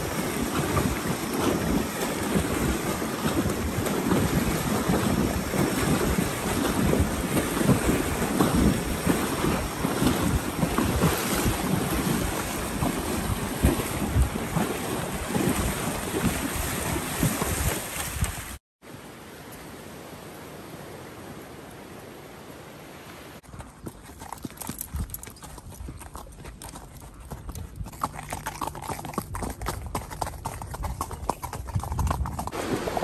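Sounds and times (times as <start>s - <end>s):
wind buffeting microphone: 0.0s - 18.6s, 29.2s - 32.6s
surf rushing: 32.6s - 33.0s.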